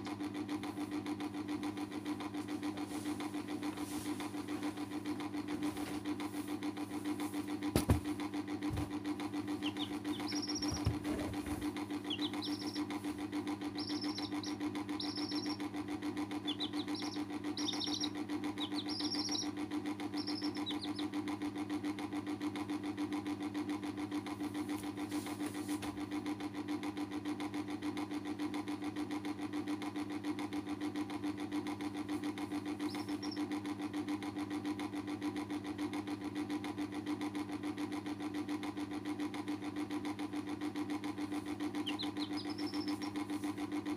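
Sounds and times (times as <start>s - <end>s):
steady machine hum: 0.0s - 22.8s, 31.4s - 34.7s, 38.3s - 43.9s
chicks peeping: 9.5s - 21.2s, 32.8s - 33.5s, 41.6s - 43.6s.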